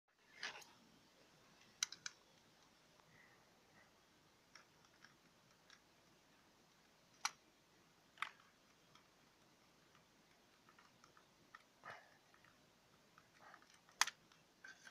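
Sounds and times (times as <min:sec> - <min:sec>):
small clicks of clock hands: 0:01.6 - 0:03.2, 0:04.4 - 0:07.5, 0:08.1 - 0:14.9.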